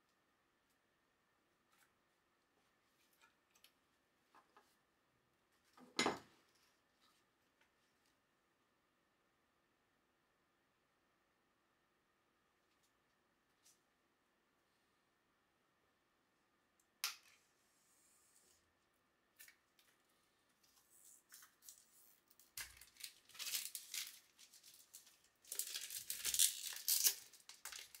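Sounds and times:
plastic wrap crinkling and tearing: 21.3s - 28.0s.

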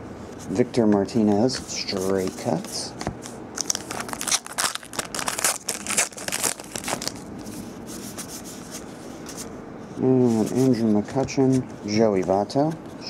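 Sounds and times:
rustling of cards handled: 0.3s - 13.0s
wrapper tearing and crinkling: 3.6s - 7.3s.

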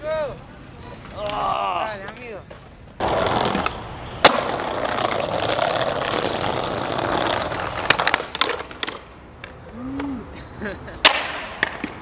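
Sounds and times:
skateboard wheels rolling on brick: 0.0s - 9.8s, 11.0s - 12.0s
skateboard clack: 2.0s - 10.2s, 10.9s - 12.0s.

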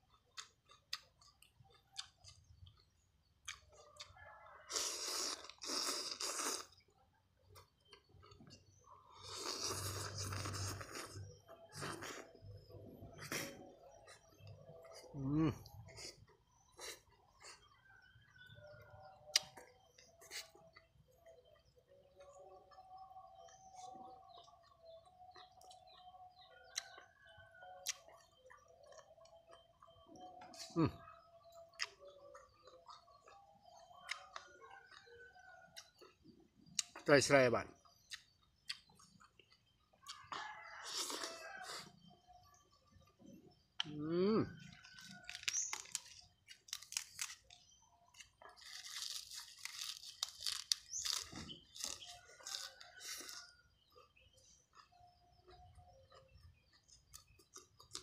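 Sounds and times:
person crunching and chewing: 0.0s - 4.1s, 4.7s - 6.9s, 8.0s - 12.5s, 38.0s - 42.0s, 44.6s - 58.0s
lettuce leaves tearing: 45.2s - 47.6s, 48.6s - 52.7s.

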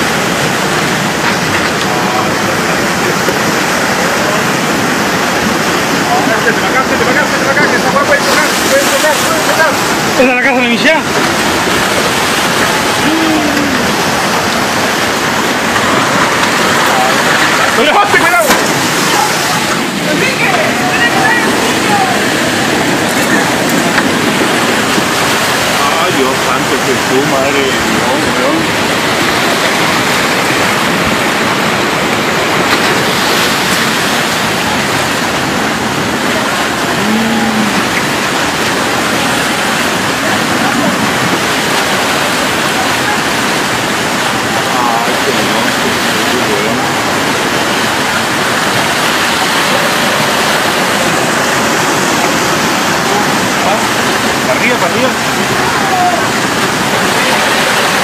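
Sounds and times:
mudflow rushing through streets: 0.0s - 58.0s
person calling: 12.7s - 14.4s, 36.9s - 38.0s.

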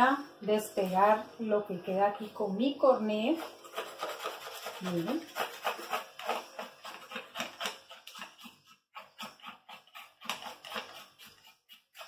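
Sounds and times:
plastic scraper scraping bowl: 3.1s - 12.0s.

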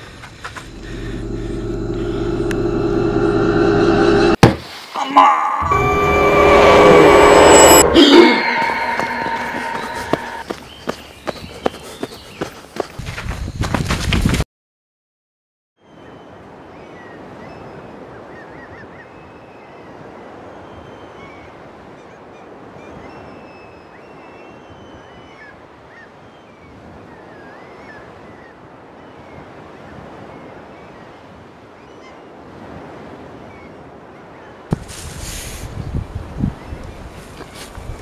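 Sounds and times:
wind rushing on microphone: 34.7s - 38.0s.

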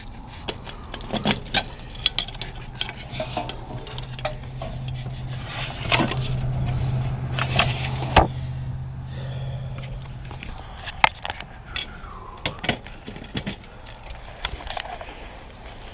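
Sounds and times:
keys jangling: 0.0s - 5.0s, 11.6s - 15.2s.

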